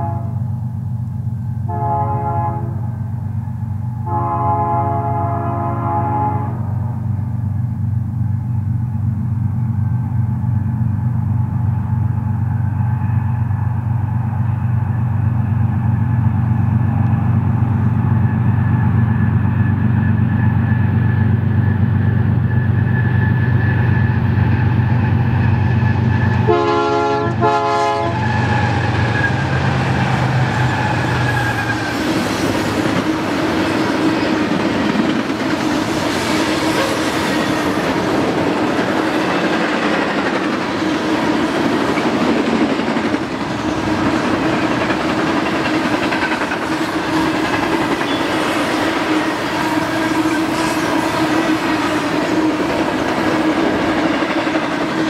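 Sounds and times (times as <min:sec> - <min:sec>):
locomotive air horn blasts: 0:00.0 - 0:00.6, 0:01.7 - 0:03.0, 0:04.0 - 0:06.8, 0:26.4 - 0:29.8, 0:36.6 - 0:37.4
low rumble of train: 0:00.0 - 0:55.0.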